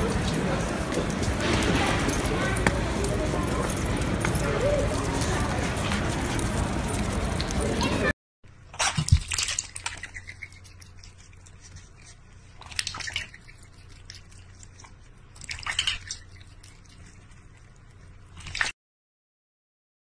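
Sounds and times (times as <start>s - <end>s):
cat lapping water: 8.7s - 18.7s
water splashing in metal bowl: 8.8s - 11.2s, 12.6s - 14.2s, 15.4s - 16.6s.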